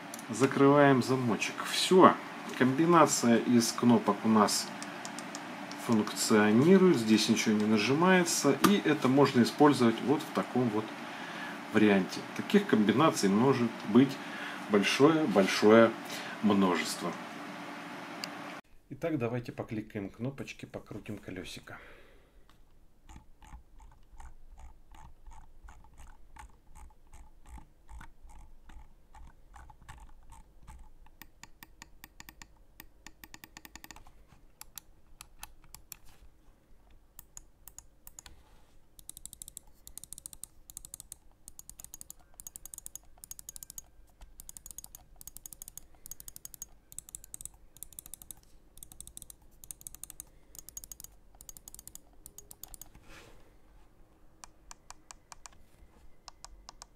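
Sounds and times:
mouse scroll wheel ticking: 4.8 - 6.0, 23.1 - 36.1, 37.2 - 38.4, 39.0 - 53.0, 54.4 - 55.6, 56.2 - 56.9.

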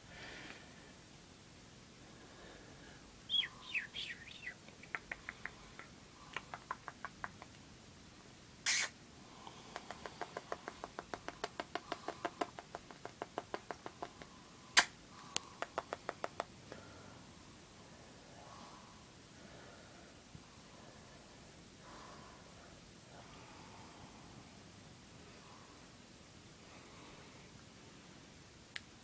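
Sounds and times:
kissing smacks: 4.6 - 7.6, 8.6 - 9.0, 9.7 - 14.2, 14.8 - 16.5
loud harsh parrot bursts: 8.6 - 9.0
parrot squeaky chirps: 8.7 - 9.0.

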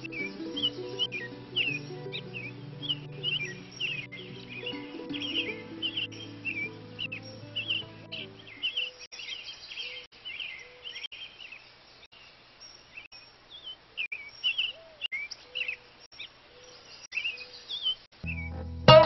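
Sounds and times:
small birds chirping: 0.0 - 19.0
low arched bird note: 18.2 - 19.0.

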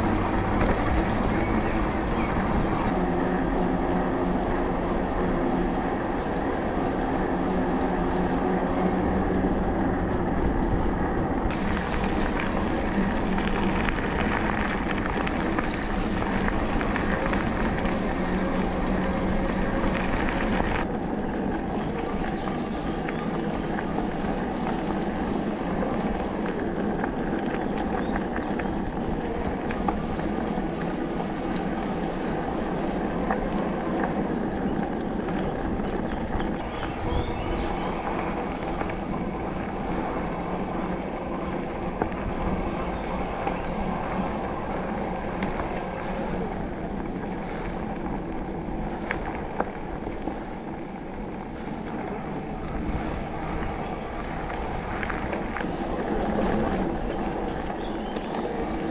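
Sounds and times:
bike tyres on dirt track: 0.0 - 58.9.

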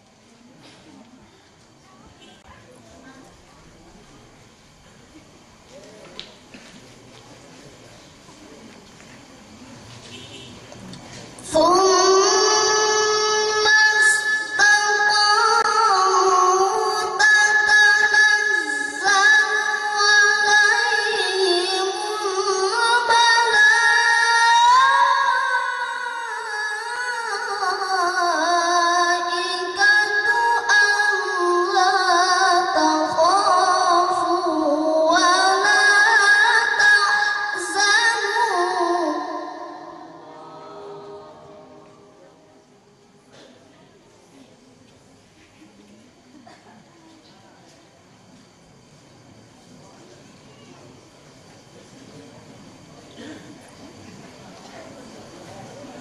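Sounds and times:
boy reciting melodically over loudspeakers: 11.0 - 42.5.

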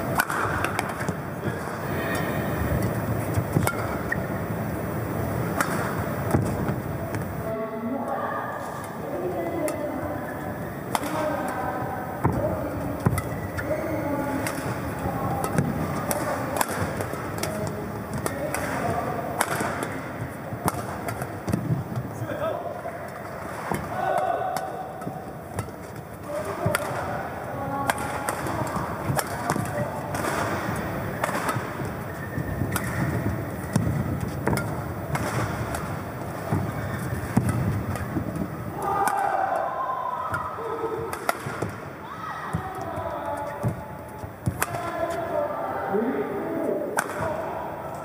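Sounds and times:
rackets striking shuttlecock: 0.0 - 1.2, 1.8 - 7.5, 10.8 - 11.6, 12.2 - 22.2, 22.8 - 39.7, 40.3 - 41.9, 42.5 - 45.3, 46.9 - 48.0
hall background noise: 0.0 - 48.0
shoes squeaking on court: 1.8 - 7.5, 22.8 - 38.6.

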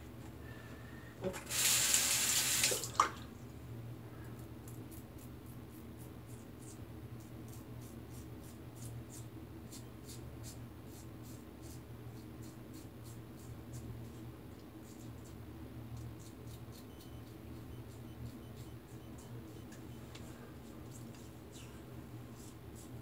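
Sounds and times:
sink tap running: 1.2 - 3.1.

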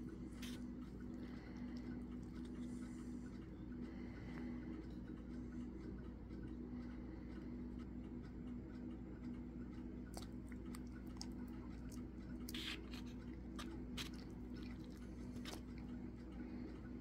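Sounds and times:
fork squishing wet noodles: 0.0 - 3.2, 10.1 - 16.2
steady low hum: 0.0 - 17.0.

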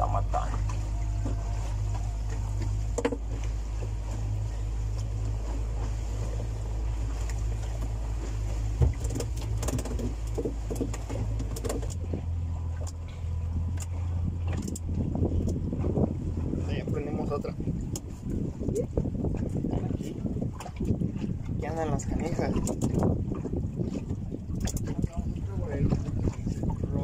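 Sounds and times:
boat motor running: 0.0 - 27.0.

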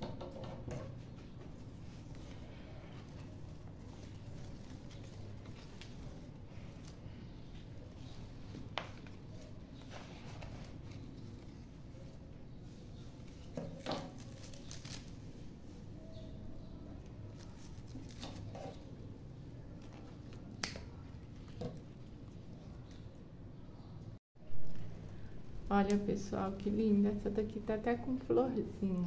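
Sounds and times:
leaves rustling: 14.1 - 15.4, 17.3 - 18.4.

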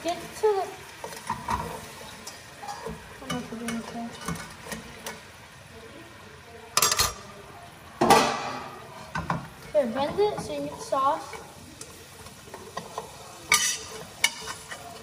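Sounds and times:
metal spoon stirring in pot: 0.9 - 5.3, 9.0 - 15.0
utensils and pot lid clinking: 1.0 - 5.2, 6.8 - 7.3, 12.5 - 15.0.

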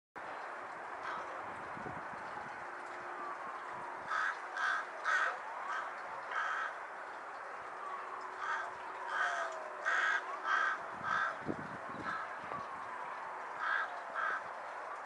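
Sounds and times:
crow cawing: 4.1 - 6.9, 8.4 - 12.4, 13.6 - 14.6.

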